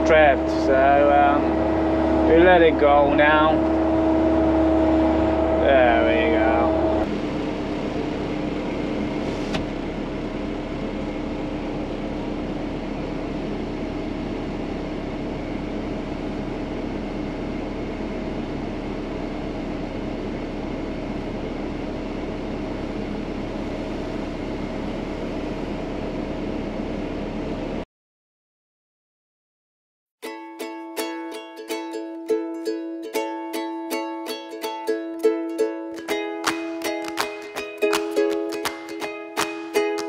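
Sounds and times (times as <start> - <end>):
excavator diesel engine idling: 0.0 - 27.8.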